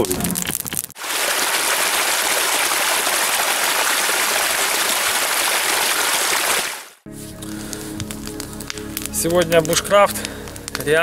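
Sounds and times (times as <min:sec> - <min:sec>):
stream rushing over rocks: 0:01.0 - 0:07.0.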